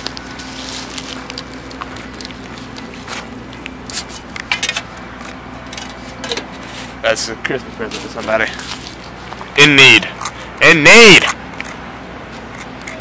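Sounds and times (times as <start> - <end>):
clicks and rustles: 0.0 - 6.6
steady low hum: 0.0 - 13.0.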